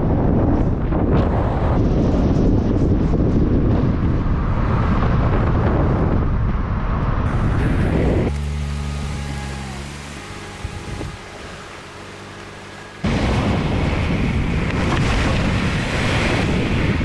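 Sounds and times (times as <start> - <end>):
vehicle cabin rumble: 5.2 - 17.0.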